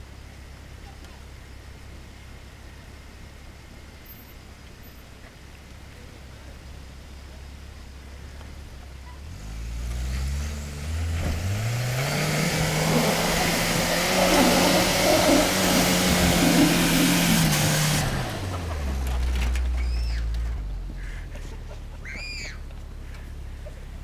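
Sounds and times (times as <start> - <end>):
tires rushing in snow: 9.0 - 21.4, 22.0 - 24.0
truck engine revving: 9.2 - 20.9.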